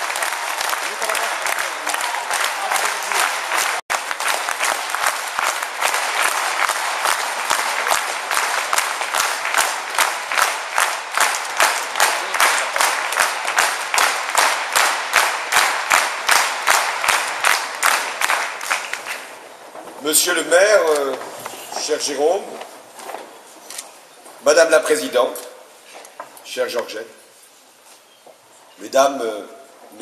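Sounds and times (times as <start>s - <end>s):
rhythmic clapping in unison: 0.0s - 19.5s
audience applause: 0.0s - 19.6s.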